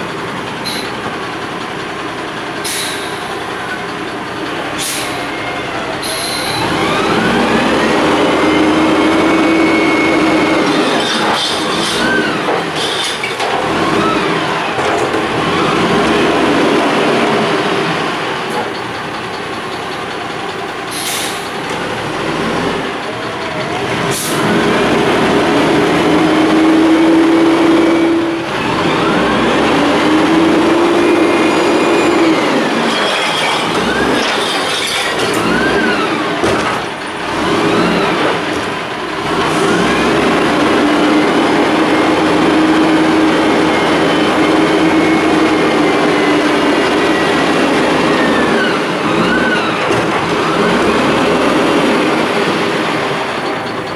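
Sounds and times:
garbage truck engine revving: 0.0s - 53.9s
lift arms squealing: 4.9s - 14.6s, 27.0s - 36.4s, 42.6s - 51.9s
hydraulic whine: 23.8s - 53.9s.

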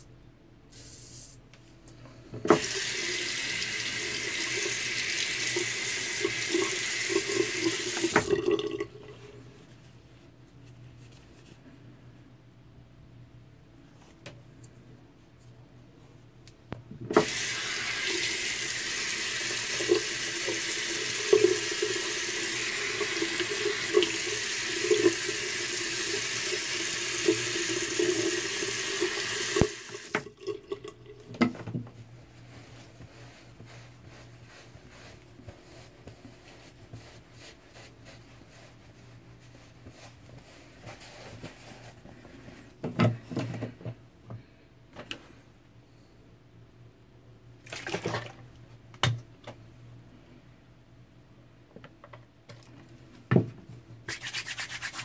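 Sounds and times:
tap water running into sink: 2.5s - 9.0s, 17.1s - 31.6s
small splashes and knocks: 47.6s - 48.5s.

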